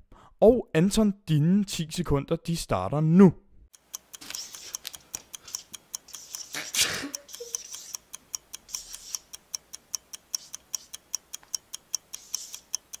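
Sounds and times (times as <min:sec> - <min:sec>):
clock ticking rapidly: 0:03.7 - 0:13.0.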